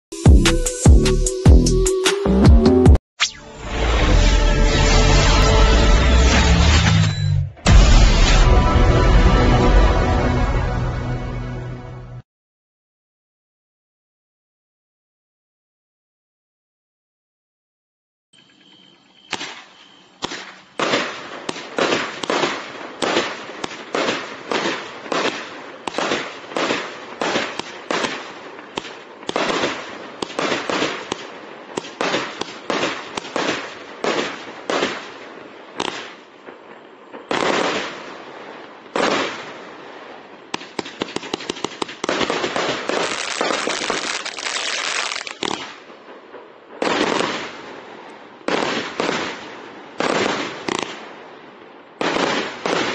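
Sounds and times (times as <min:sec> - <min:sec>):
firework shots bursting: 0:20.2 - 0:36.3, 0:37.2 - 0:38.3, 0:38.9 - 0:51.1, 0:52.0 - 0:52.9.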